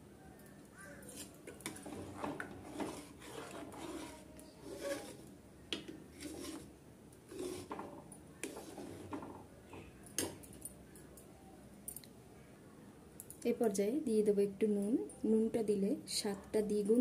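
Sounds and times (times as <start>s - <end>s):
spoon scraping pot bottom: 1.1s - 5.3s, 6.1s - 6.7s, 7.3s - 9.3s.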